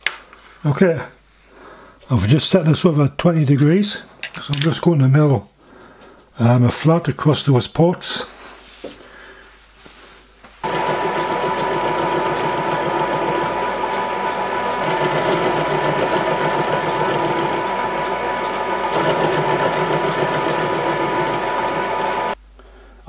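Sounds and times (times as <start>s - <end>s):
milling machine whining: 10.6s - 22.4s.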